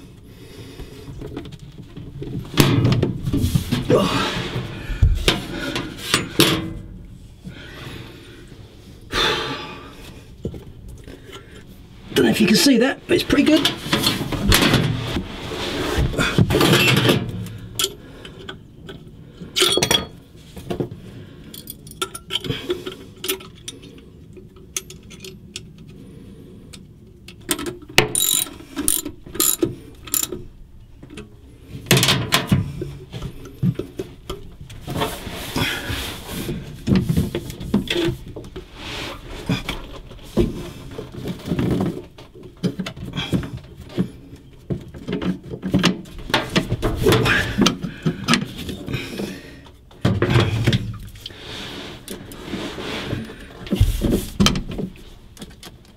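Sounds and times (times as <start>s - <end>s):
ratchet wrench clicking: 28.1s - 30.3s.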